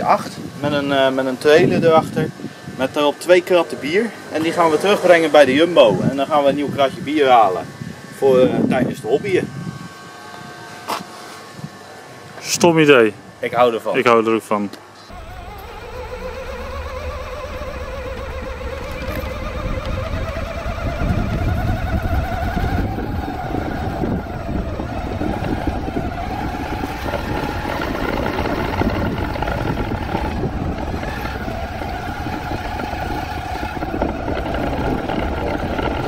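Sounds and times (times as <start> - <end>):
electric motor and gearbox whine: 0.0 - 36.0
wheels rolling over brick paving: 15.1 - 36.0.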